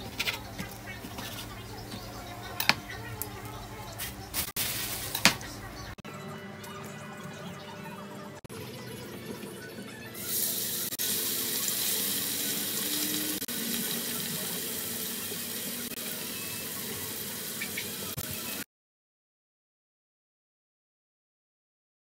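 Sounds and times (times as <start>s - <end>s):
meat sizzling in oil: 10.2s - 18.6s.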